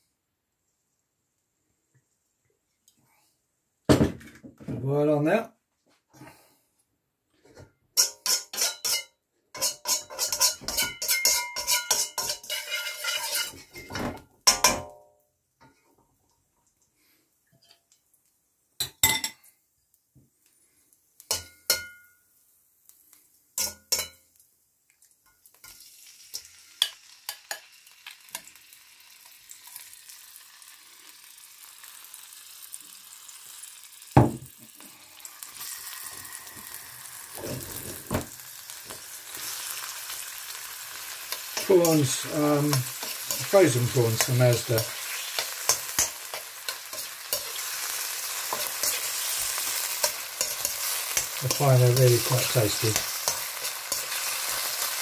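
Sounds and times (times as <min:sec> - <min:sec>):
metal spoon scraping a wok: 0:08.0 - 0:14.0, 0:42.9 - 0:55.0
frying sizzle: 0:08.0 - 0:14.9, 0:20.4 - 0:55.0.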